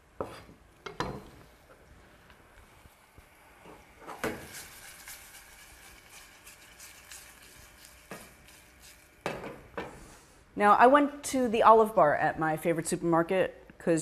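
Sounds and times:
faint sizzle: 0.0s - 12.2s
spoon stirring in a saucepan: 0.2s - 10.2s.

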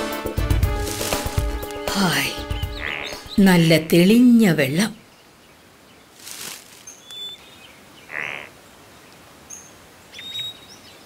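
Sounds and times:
high bird chirps: 2.4s - 3.5s, 6.8s - 8.2s
soft swishing rustles: 6.1s - 7.1s.

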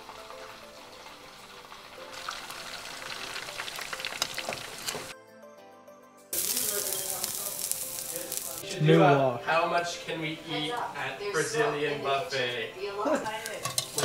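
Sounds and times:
food sizzling in hot oil: 0.0s - 5.1s, 6.3s - 9.1s, 13.1s - 14.0s.

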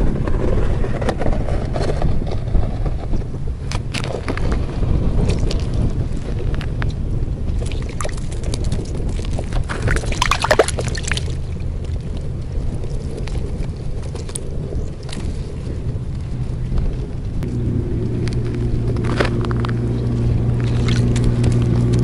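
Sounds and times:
wind rumble on microphone: 0.0s - 22.0s
ice and slush crunching: 3.7s - 6.7s, 7.5s - 16.8s, 17.5s - 22.0s
crackling splash: 3.7s - 15.8s, 18.0s - 22.0s.

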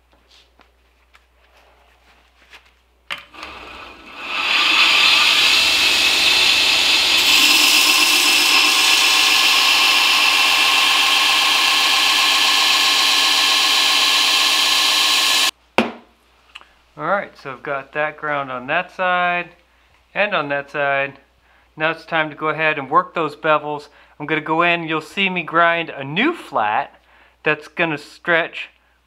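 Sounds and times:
belt grinder grinding steel: 3.3s - 15.5s.

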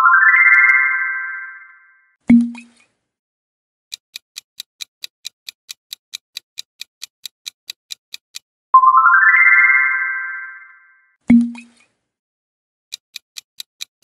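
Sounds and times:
bright rising chime: 0.0s - 2.0s, 8.8s - 11.1s
clock-like ticking: 3.9s - 8.5s, 12.9s - 14.0s.

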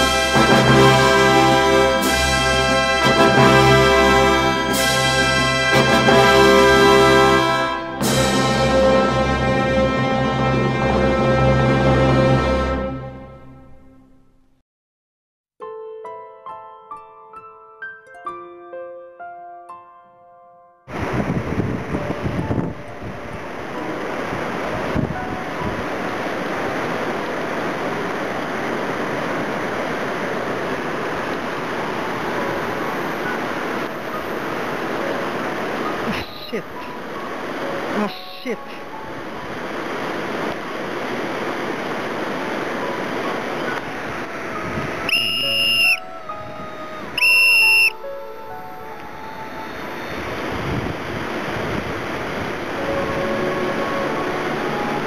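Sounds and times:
river rapids rushing: 0.0s - 12.4s, 20.9s - 22.4s, 23.0s - 55.0s
loud whistle blasts: 45.0s - 48.1s.

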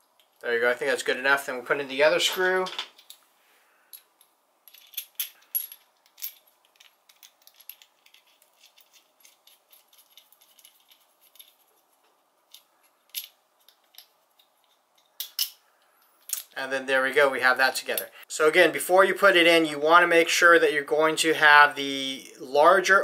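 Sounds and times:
small metal clicks and rattling: 4.7s - 16.6s.

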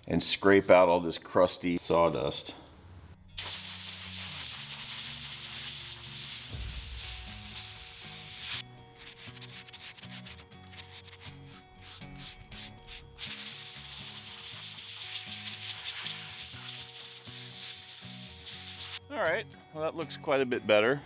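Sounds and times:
wire brush scraping sawdust: 3.4s - 19.0s.

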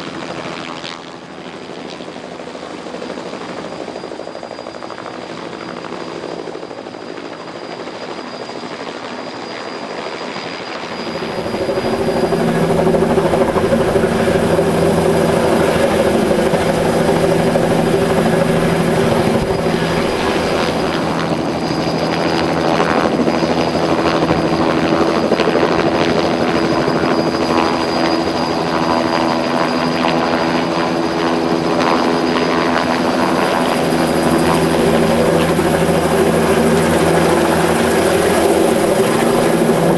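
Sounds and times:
helicopter rotor and engine drone: 0.0s - 39.9s.

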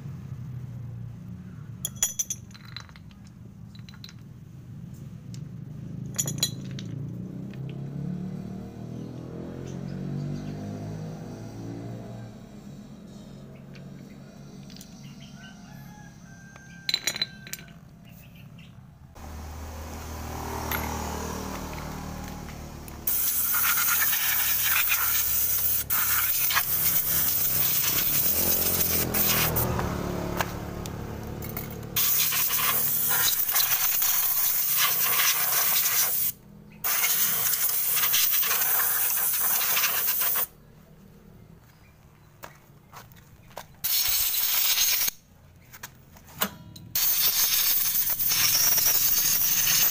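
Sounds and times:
compressed air hissing: 23.0s - 29.6s, 32.0s - 40.5s, 47.0s - 49.9s.

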